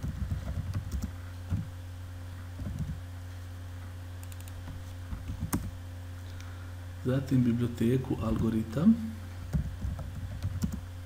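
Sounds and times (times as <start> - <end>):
computer keyboard typing: 0.0 - 1.6, 2.6 - 3.0, 4.2 - 4.6, 5.3 - 5.7, 9.5 - 10.8
steady low hum: 0.0 - 11.0.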